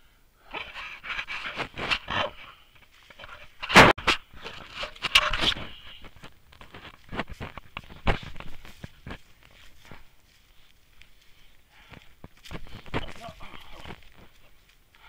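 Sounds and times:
hard breathing: 0:00.0 - 0:03.6, 0:07.7 - 0:15.0
footsteps through dry grass: 0:00.6 - 0:15.0.

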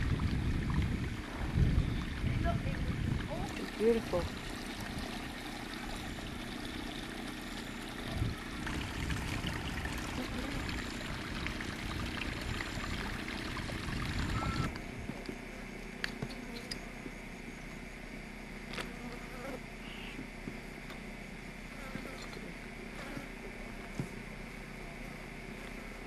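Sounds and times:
creek water trickling over rocks: 0:02.2 - 0:14.7.

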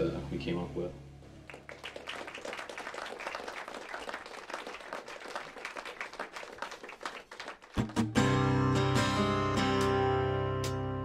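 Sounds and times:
audience applauding: 0:01.4 - 0:08.3
acoustic guitar strumming: 0:07.8 - 0:11.0.

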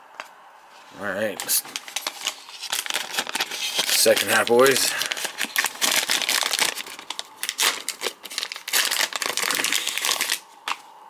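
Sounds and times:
plastic wrapper crinkling: 0:01.3 - 0:10.8.

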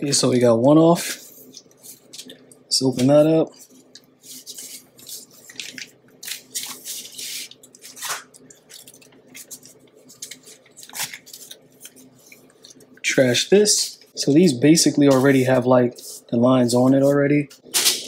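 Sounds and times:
paper rustling and crinkling: 0:01.2 - 0:12.9.

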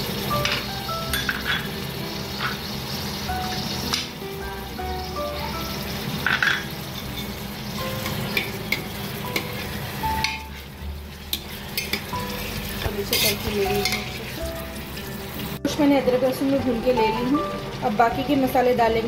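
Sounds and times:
meat sizzling in hot oil: 0:00.0 - 0:19.0
ladle scraping against pot: 0:11.3 - 0:14.4.

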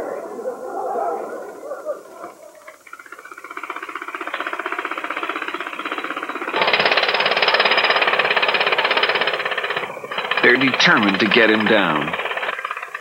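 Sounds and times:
pneumatic hammer chiselling stone: 0:03.5 - 0:13.0.

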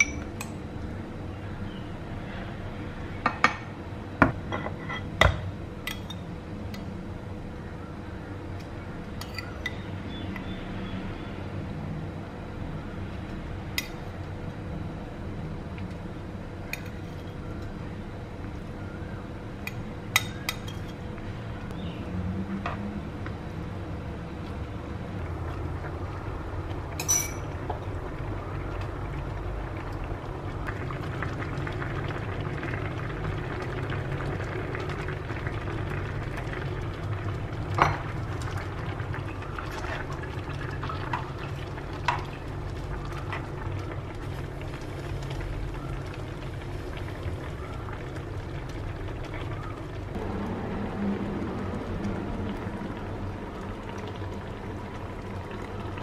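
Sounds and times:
stew simmering in a pan: 0:22.7 - 0:56.0
metal spoon clinking on pan: 0:27.0 - 0:27.4.

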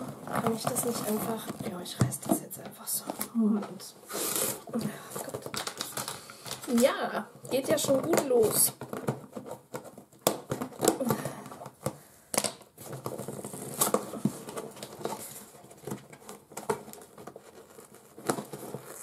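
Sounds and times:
paper tearing and crinkling: 0:12.9 - 0:19.0.

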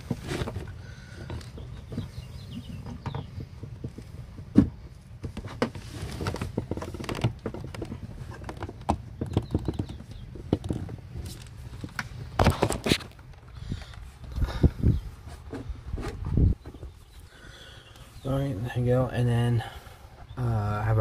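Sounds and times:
objects tapping and knocking: 0:00.0 - 0:13.4.

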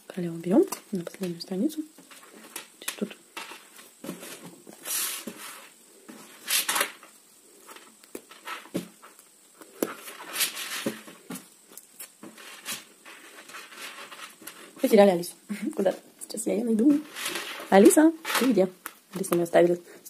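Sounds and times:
felt rustling and brushing: 0:03.3 - 0:15.1, 0:16.6 - 0:18.7.

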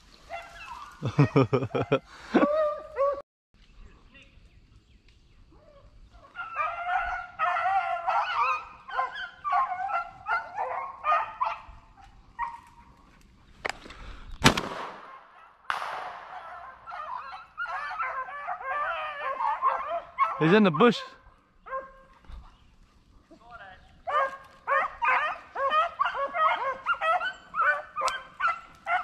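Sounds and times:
dogs baying: 0:05.7 - 0:13.3, 0:16.3 - 0:29.0
sharp crack: 0:13.6 - 0:16.8.

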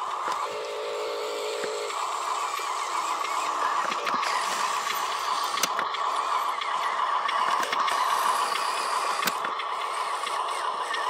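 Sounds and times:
electric motor whine: 0:00.0 - 0:11.0
sharp clicks: 0:04.8 - 0:11.0.

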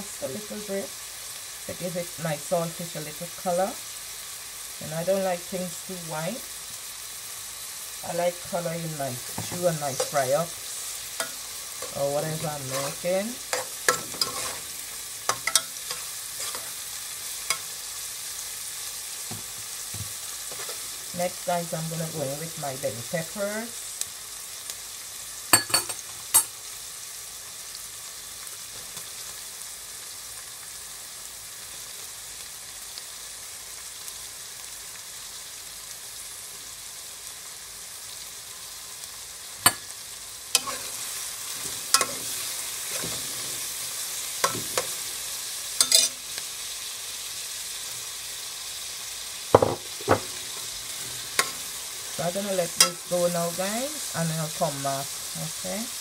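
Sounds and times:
onions sizzling in hot oil: 0:00.0 - 0:56.0
metal spoon scraping a pot: 0:11.2 - 0:16.8, 0:40.6 - 0:43.6, 0:45.8 - 0:46.2.

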